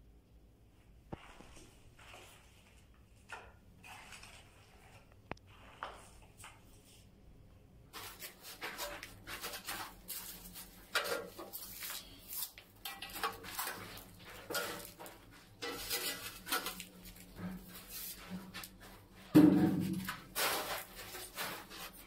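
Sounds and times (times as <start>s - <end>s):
tile scraping against concrete wall: 7.9s - 22.0s.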